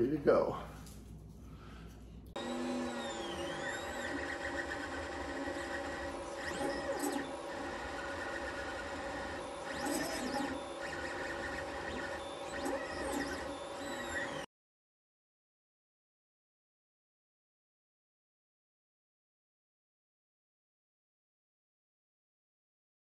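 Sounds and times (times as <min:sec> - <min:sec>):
printer stepper motors whining: 0:02.4 - 0:14.5.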